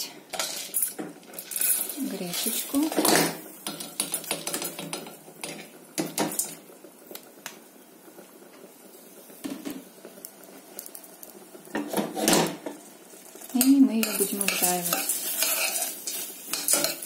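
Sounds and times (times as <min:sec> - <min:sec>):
grains pattering into saucepan: 0:00.0 - 0:17.0.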